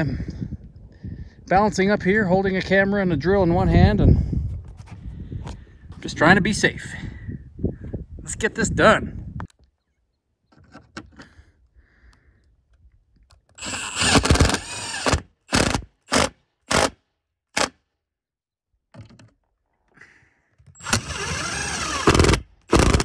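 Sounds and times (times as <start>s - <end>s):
power drill on metal roof: 13.3s - 17.9s, 20.5s - 23.0s.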